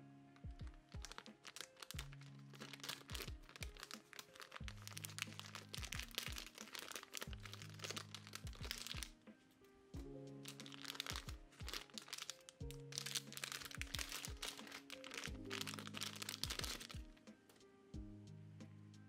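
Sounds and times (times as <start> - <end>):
lofi background music: 0.0 - 19.0
plastic bag crinkling: 0.6 - 9.2, 10.4 - 17.2.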